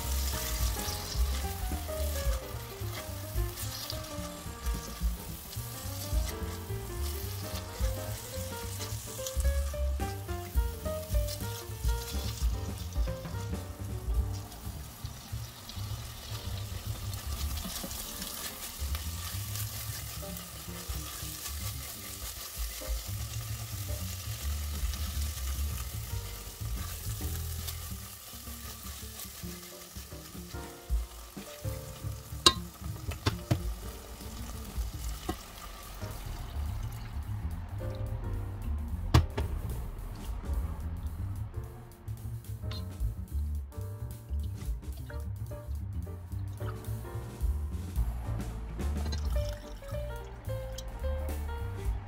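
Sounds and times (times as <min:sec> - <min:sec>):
spatula scraping and stirring: 0:00.0 - 0:13.6, 0:14.3 - 0:36.3
water pouring into pot: 0:00.0 - 0:38.0, 0:48.8 - 0:51.0
food sizzling in a pot: 0:00.0 - 0:41.4, 0:46.6 - 0:52.0
sharp knock: 0:39.1 - 0:41.0.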